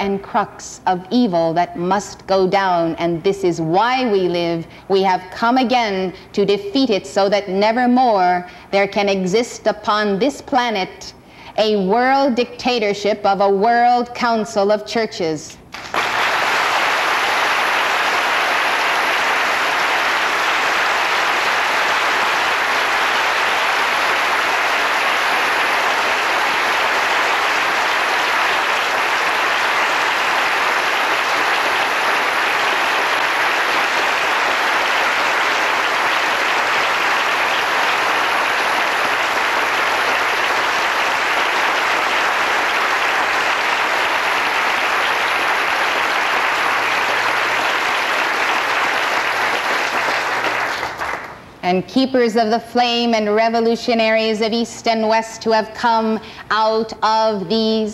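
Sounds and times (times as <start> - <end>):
large audience applauding: 15.8 - 51.4.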